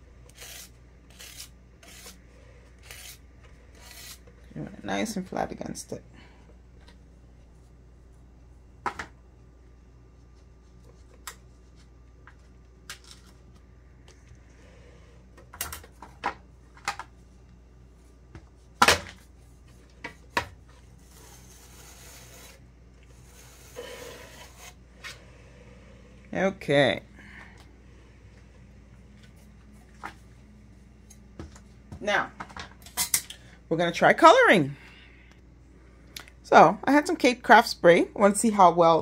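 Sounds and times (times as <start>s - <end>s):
soft rubbing and scraping: 20.6s - 26.2s.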